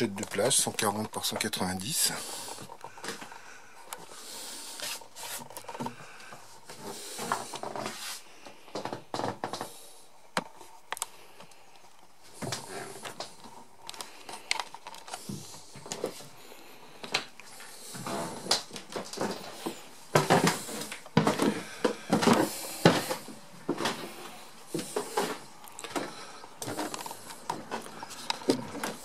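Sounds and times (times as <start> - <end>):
rustling and handling noise: 0.0 - 29.0
footsteps on wooden steps: 17.0 - 29.0.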